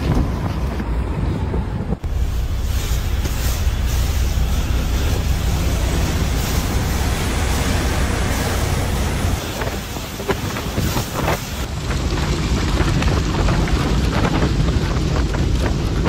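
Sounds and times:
wind noise on microphone: 0.0 - 16.0
brush scraping windshield: 2.0 - 11.7
brush sweeping snow: 2.0 - 11.7.

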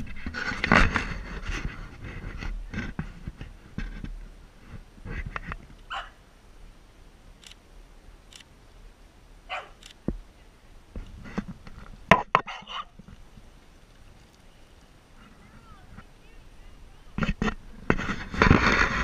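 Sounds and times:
dog barking: 5.9 - 6.2, 9.5 - 9.8, 12.4 - 12.9.

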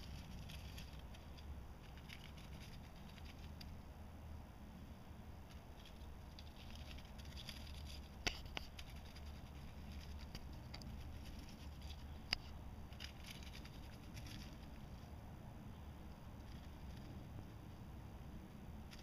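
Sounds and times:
rustling in dry leaves: 0.0 - 3.8, 5.5 - 15.2.

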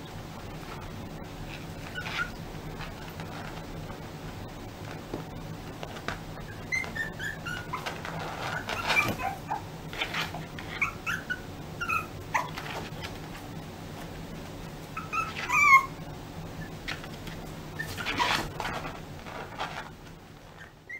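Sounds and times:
paws scratching a cushion: 0.5 - 16.0, 16.6 - 20.9
puppy whining: 0.6 - 3.8, 5.8 - 13.4, 14.9 - 17.1, 17.7 - 20.9.

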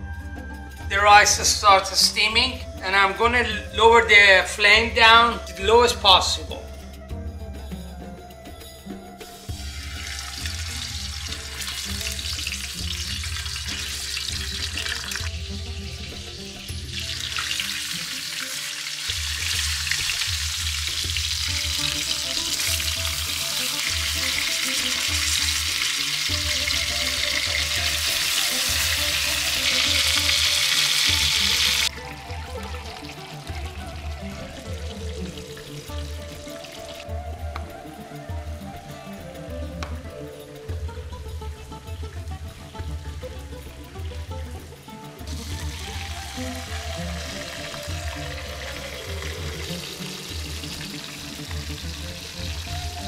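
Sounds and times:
chicken sizzling in pan: 9.6 - 31.9, 45.3 - 53.0.

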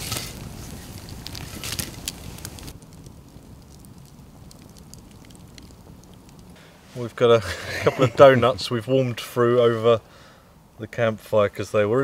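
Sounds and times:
campfire crackling and popping: 0.0 - 8.8.

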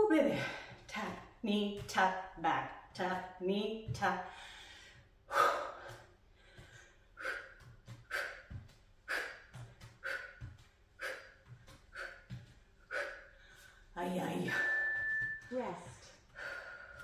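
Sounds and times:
bare feet tapping wooden floor: 0.4 - 5.2, 5.8 - 13.0, 14.5 - 17.0
woman breathing hard: 4.3 - 14.0, 16.2 - 17.0.

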